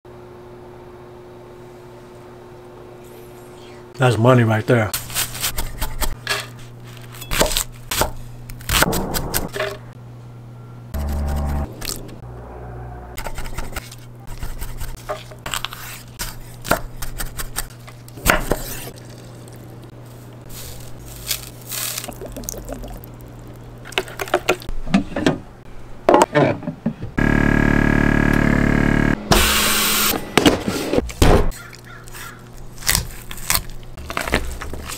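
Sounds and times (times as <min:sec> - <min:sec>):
low hum: 0:08.3 - 0:14.4
spoon stirring wet food: 0:21.7 - 0:24.6.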